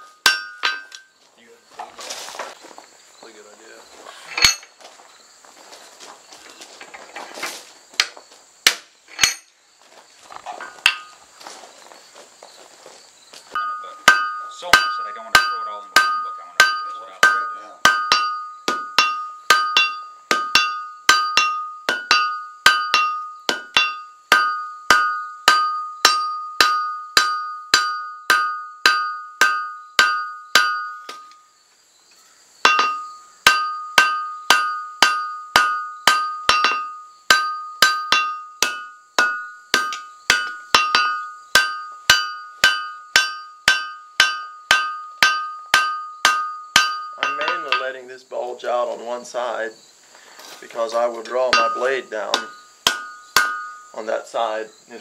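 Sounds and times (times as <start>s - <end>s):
anvil ringing: 0.0s - 1.1s, 4.4s - 4.7s, 9.2s - 9.5s, 13.6s - 31.4s, 32.6s - 48.0s, 51.4s - 53.9s
hammer striking steel on anvil: 0.0s - 1.1s, 4.4s - 4.7s, 8.7s - 9.5s, 13.6s - 31.4s, 32.6s - 48.0s, 51.5s - 53.9s.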